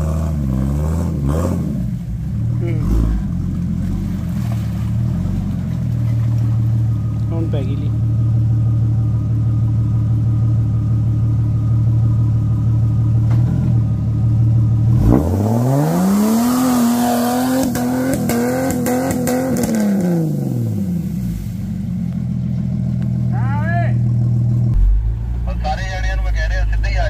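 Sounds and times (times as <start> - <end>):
car engine idling and revving: 0.0 - 27.0.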